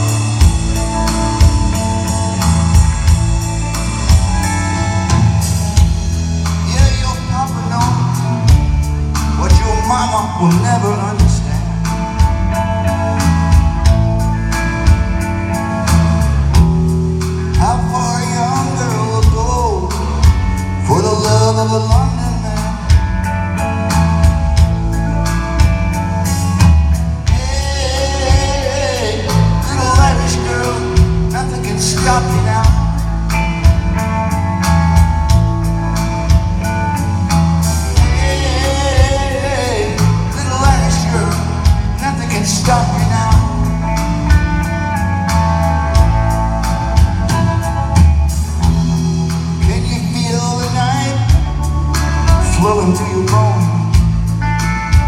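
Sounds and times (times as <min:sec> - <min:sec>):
bass guitar: 0:00.0 - 0:55.0
drums with steady beat: 0:00.0 - 0:55.0
electric guitars: 0:00.0 - 0:55.0
man singing: 0:06.4 - 0:12.6, 0:17.5 - 0:23.3, 0:27.2 - 0:34.0, 0:37.7 - 0:44.1, 0:49.5 - 0:54.3.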